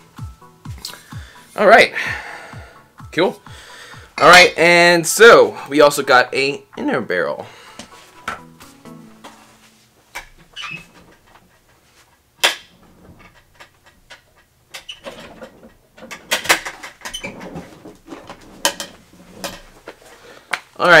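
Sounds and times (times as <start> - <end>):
rustling and scraping: 7.7 - 20.8.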